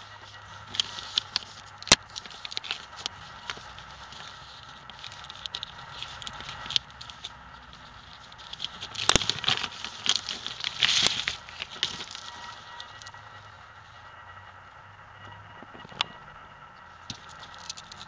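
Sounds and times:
plastic wrapping crinkling: 0:00.0 - 0:13.4, 0:17.0 - 0:18.0.

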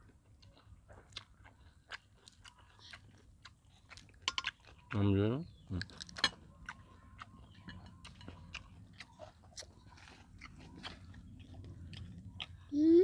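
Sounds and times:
faint chewing crunches: 0:00.0 - 0:13.0.

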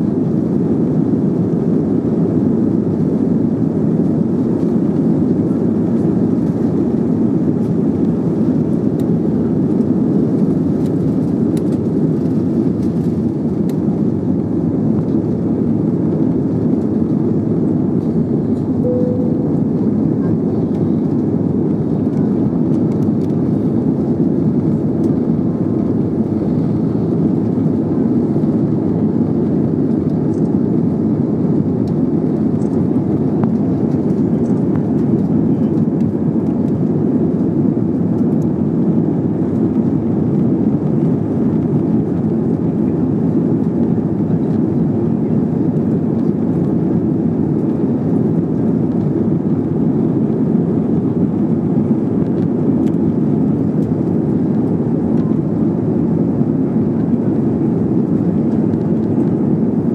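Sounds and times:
airplane cabin engine rumble: 0:00.0 - 0:59.9.

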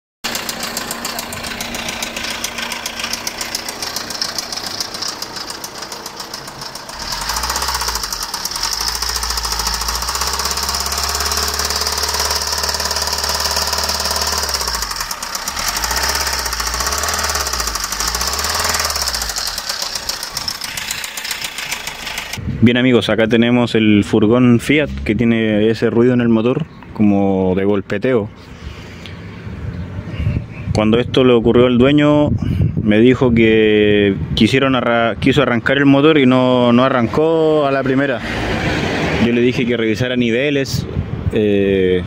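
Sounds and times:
diesel engine knocking: 0:00.3 - 0:22.4.

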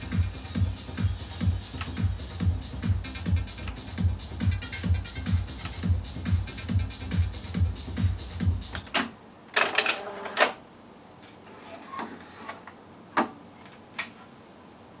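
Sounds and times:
music from tape deck: 0:00.0 - 0:09.0.

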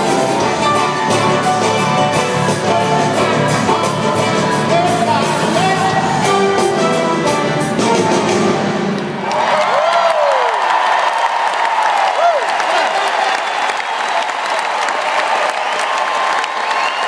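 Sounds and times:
live pop-rock band with piano: 0:00.0 - 0:10.4
man singing lead vocal: 0:03.6 - 0:06.7
crowd cheering and whistling: 0:09.0 - 0:17.0.

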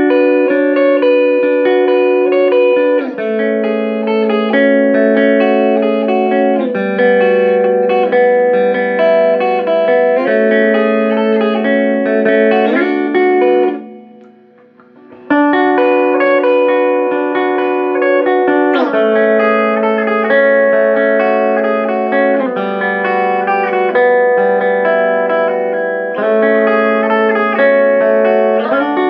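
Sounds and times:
electric guitar through an amp: 0:00.0 - 0:29.0.

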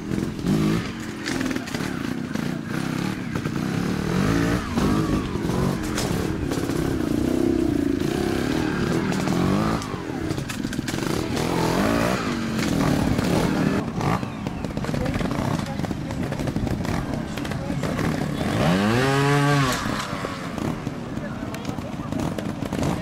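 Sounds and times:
motorcycle engine revving: 0:00.0 - 0:23.0
clicks and clatter: 0:00.1 - 0:02.6, 0:05.6 - 0:07.0, 0:08.8 - 0:11.7, 0:12.3 - 0:19.0, 0:19.6 - 0:23.0.

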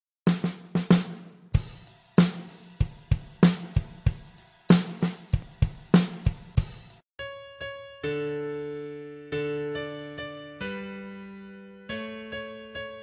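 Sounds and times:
drum kit beat: 0:00.3 - 0:07.0
kick drum strokes: 0:00.3 - 0:07.0.

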